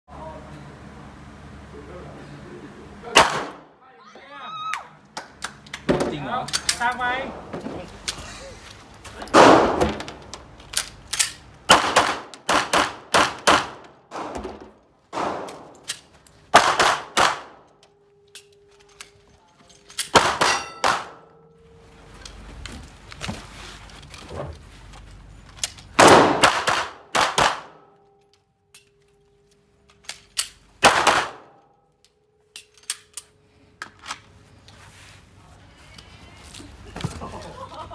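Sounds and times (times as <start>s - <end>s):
handgun shots with metallic ring: 9.3s - 10.0s, 20.0s - 21.5s.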